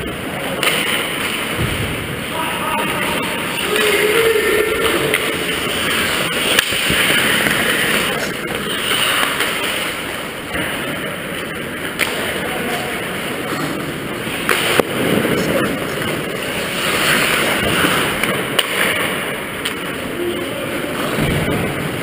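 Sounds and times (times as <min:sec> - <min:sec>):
rink rumble: 0:00.0 - 0:22.0
skate blades scraping ice: 0:05.5 - 0:10.1, 0:14.4 - 0:19.1.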